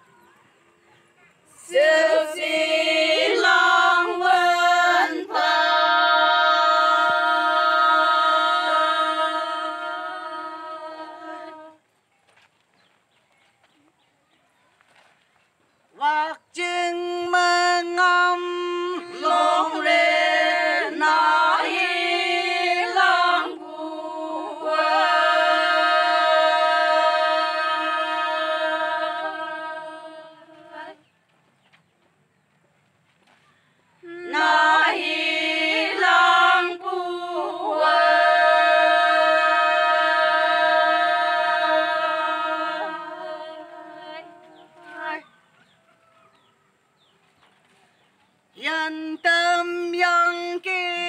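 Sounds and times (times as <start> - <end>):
women singing in unison: 1.5 - 11.8, 16.0 - 31.1, 34.0 - 45.4, 48.6 - 51.0.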